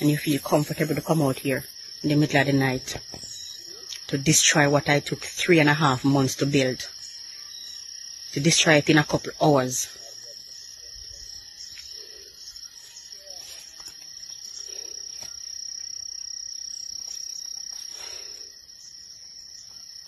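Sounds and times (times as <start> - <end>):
insects trilling: 0.0 - 20.0.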